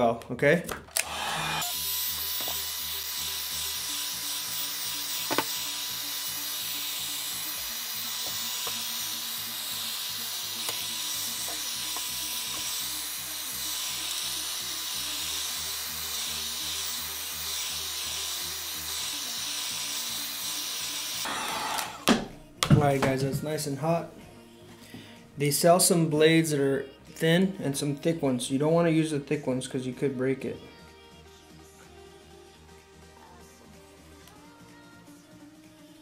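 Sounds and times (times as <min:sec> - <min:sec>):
hot-air blower hissing: 0:01.0 - 0:22.1.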